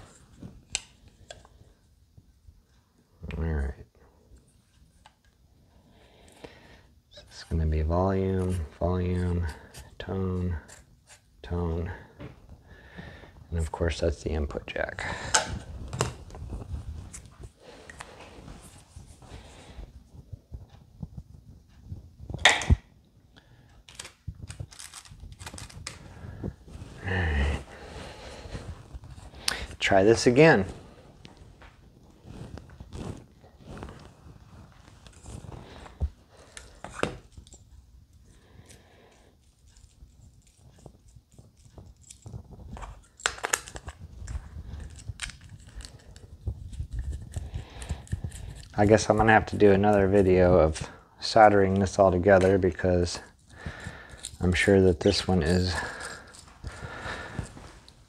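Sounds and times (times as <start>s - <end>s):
small parts clicking and rattling: 23.8s - 26.0s, 39.3s - 50.2s.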